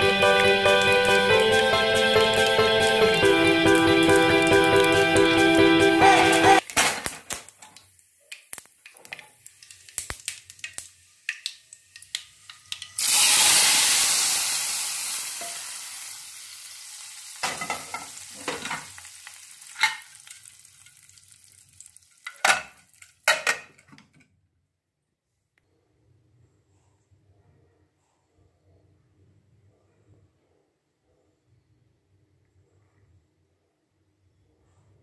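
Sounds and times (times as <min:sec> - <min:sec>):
loud oil sizzle: 0:00.0 - 0:23.3
metal pan clanks: 0:17.4 - 0:18.9, 0:19.7 - 0:20.1, 0:22.2 - 0:24.0.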